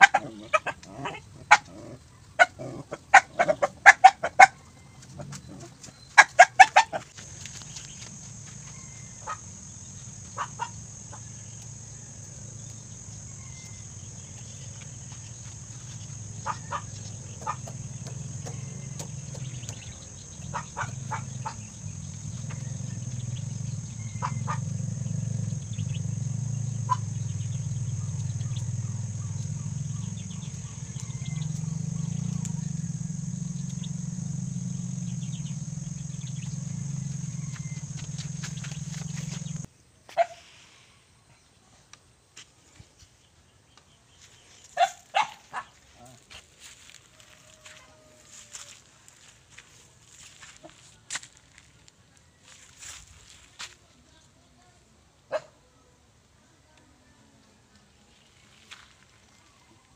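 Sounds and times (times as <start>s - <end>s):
chickens clucking: 0.0s - 11.8s, 13.2s - 39.7s
high insect drone: 6.8s - 39.7s
low steady rumble: 7.2s - 39.7s.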